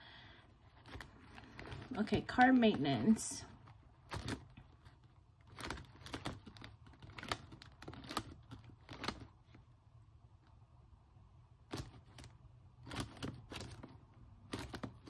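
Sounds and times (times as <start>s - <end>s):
paper and plastic rustles and clicks: 0.6s - 9.6s, 11.7s - 15.0s
planner pages being turned: 0.8s - 9.4s.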